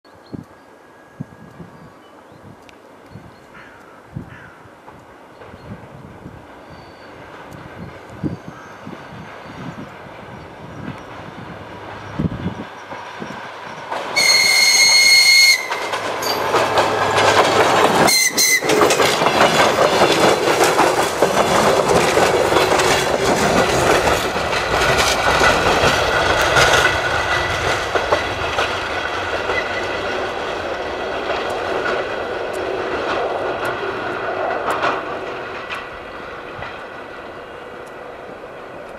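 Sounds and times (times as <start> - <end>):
train running: 0.1 - 38.9
wheels clattering over rail joints: 10.6 - 38.9
train horn: 14.2 - 16.4, 18.1 - 18.8.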